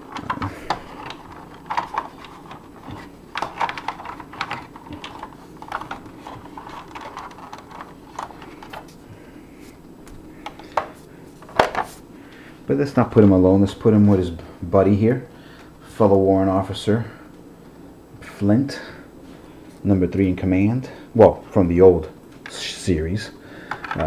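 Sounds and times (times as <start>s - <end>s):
hard plastic clicking: 0.0s - 9.0s.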